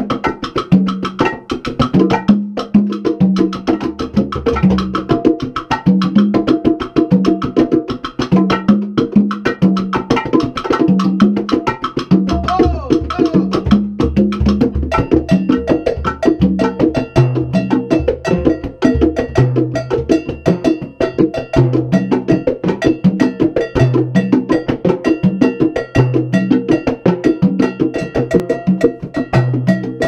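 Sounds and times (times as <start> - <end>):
drum hits: 12.2 - 15.5
cowbell struck with stick: 14.9 - 30.0.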